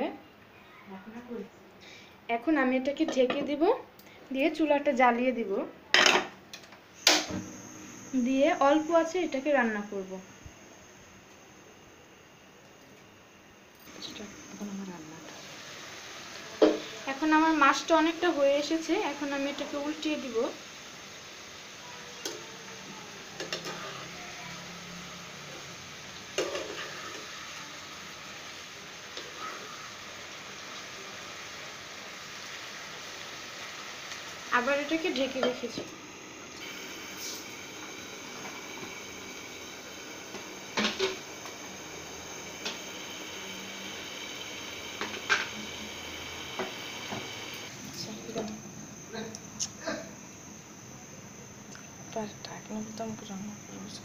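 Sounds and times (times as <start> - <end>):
cooktop hum with high whine: 0.0 - 54.0
curry sizzling in a frying pan: 13.9 - 49.2.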